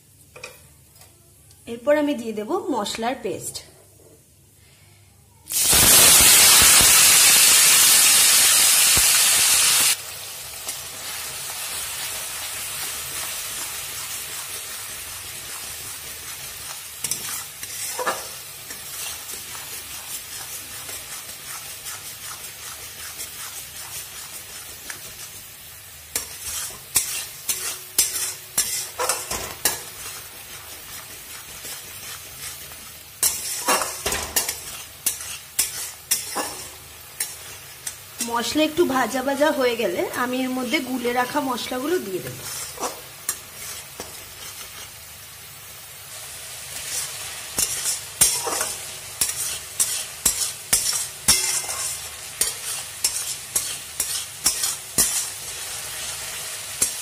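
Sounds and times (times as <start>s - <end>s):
paste sizzling in hot oil: 5.5s - 57.0s
metal spatula scraping a pan: 15.3s - 38.5s, 42.0s - 45.1s, 46.6s - 57.0s.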